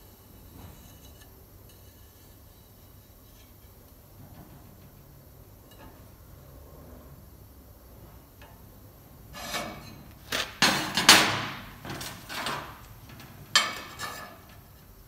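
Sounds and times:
steel sheet scraping: 0:09.3 - 0:14.9.

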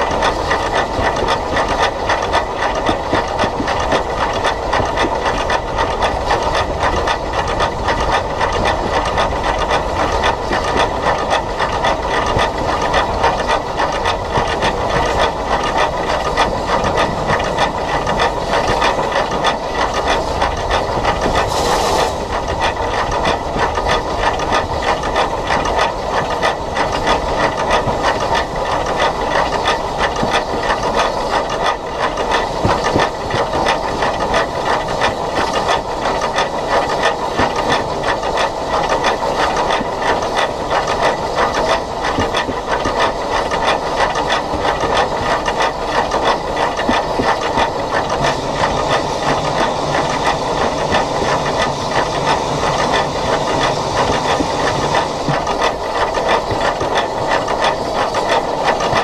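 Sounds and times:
wheels clattering on track: 0:00.0 - 0:59.0
steam hissing: 0:20.2 - 0:23.2.

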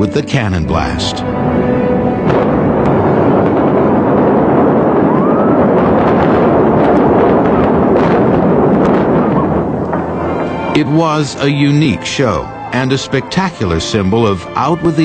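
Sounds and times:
continuous implosion rumble: 0:00.0 - 0:15.0
sharp demolition blasts: 0:01.8 - 0:12.3.

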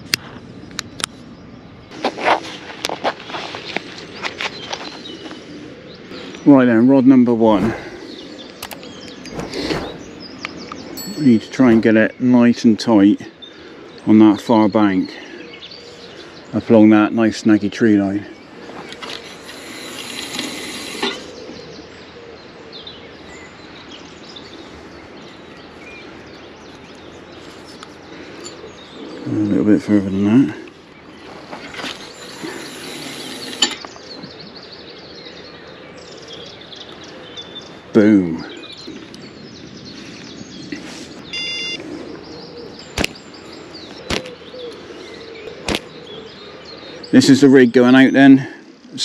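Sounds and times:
small birds chirping: 0:00.0 - 0:49.0
rustling handling noise: 0:01.9 - 0:05.4
sharp click: 0:08.6 - 0:09.8, 0:43.0 - 0:43.2
throwing stick swishes: 0:09.3 - 0:10.0
short electronic beep: 0:41.3 - 0:41.8.

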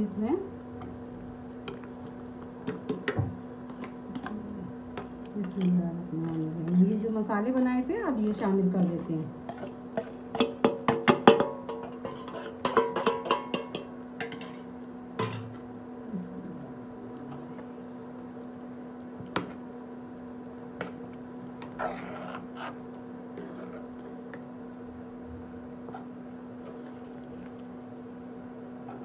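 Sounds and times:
steady low hum: 0:00.0 - 0:29.0
spatula knocking on metal pot: 0:02.6 - 0:03.3, 0:09.6 - 0:14.6.

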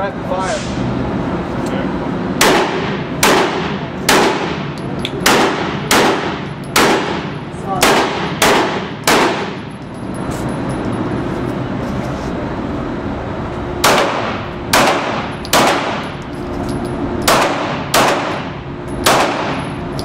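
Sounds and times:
handgun shots with ringing echo: 0:02.4 - 0:09.6, 0:13.8 - 0:16.1, 0:17.2 - 0:19.7.

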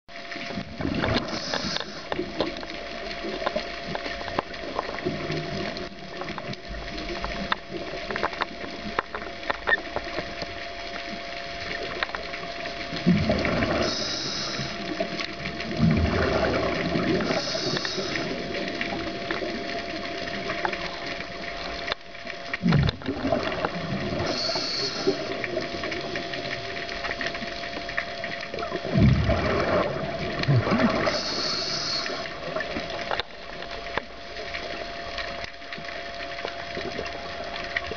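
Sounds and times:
faint steady hum: 0:00.1 - 0:37.9
exhaled bubbles burbling: 0:00.3 - 0:35.4
regulator hiss on inhale: 0:01.2 - 0:02.2, 0:13.8 - 0:15.1, 0:17.1 - 0:18.7, 0:24.2 - 0:25.6, 0:31.0 - 0:32.5.

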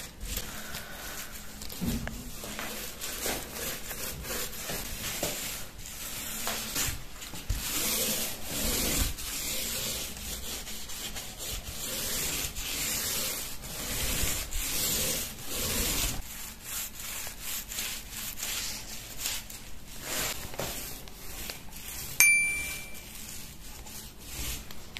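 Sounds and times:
paint roller swishing: 0:00.0 - 0:22.2, 0:22.8 - 0:24.9
bell-like ding: 0:22.2 - 0:23.0.

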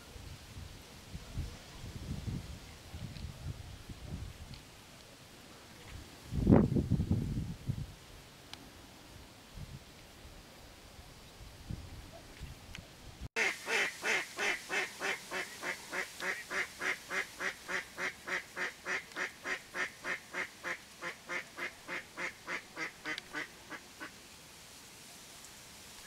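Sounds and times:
duck quacking: 0:13.4 - 0:24.1.

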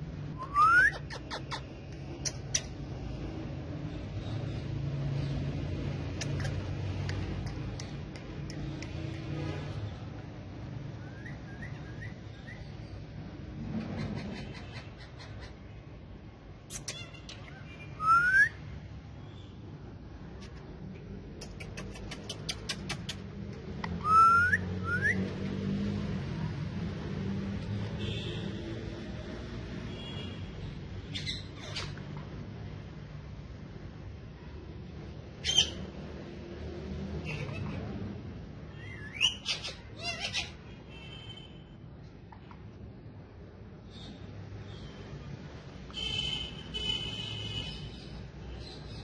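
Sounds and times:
parakeet whistling: 0:00.4 - 0:01.5, 0:11.0 - 0:12.7, 0:18.0 - 0:18.6, 0:24.0 - 0:25.3
parakeet clicks: 0:01.9 - 0:02.8, 0:06.0 - 0:09.3, 0:20.4 - 0:24.0
parakeet calling: 0:24.0 - 0:25.1, 0:31.1 - 0:32.1, 0:35.4 - 0:35.9, 0:37.2 - 0:37.9, 0:38.7 - 0:40.7.

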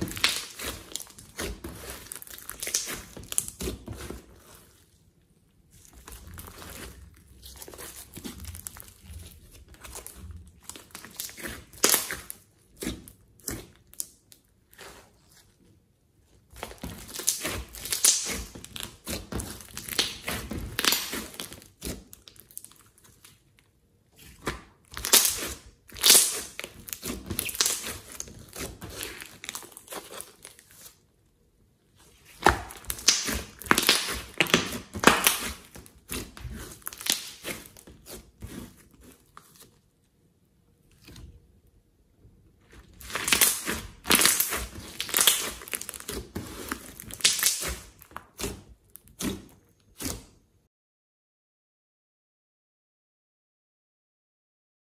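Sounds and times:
slime squishing with sticky clicks: 0:00.0 - 0:15.6, 0:16.4 - 0:31.1, 0:32.0 - 0:40.0, 0:42.6 - 0:50.4.

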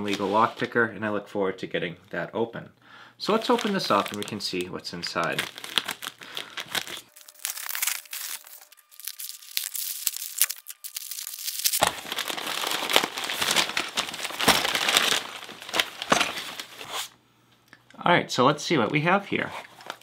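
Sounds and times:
envelope tearing: 0:03.3 - 0:17.1
paper and plastic crinkling: 0:03.3 - 0:17.1, 0:19.6 - 0:20.0.

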